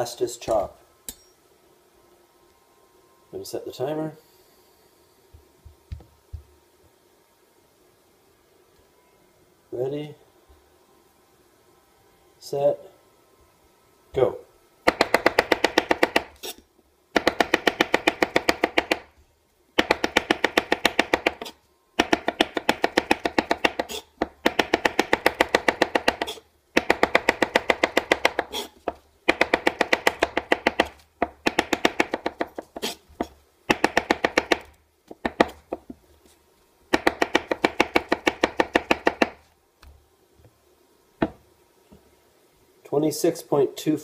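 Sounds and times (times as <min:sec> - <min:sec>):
knife chopping on wooden board: 0:17.2 - 0:19.1, 0:19.8 - 0:36.0, 0:36.9 - 0:39.5.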